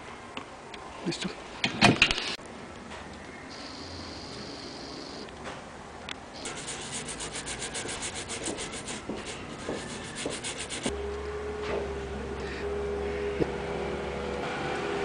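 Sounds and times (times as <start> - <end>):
brush scrubbing circuit board: 6.4 - 10.9.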